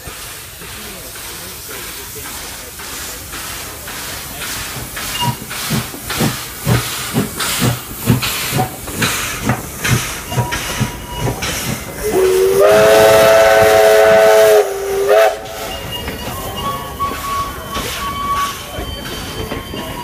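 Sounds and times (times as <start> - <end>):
steam locomotive exhaust beats: 0.0 - 20.0
steam locomotive chime whistle: 12.0 - 20.0.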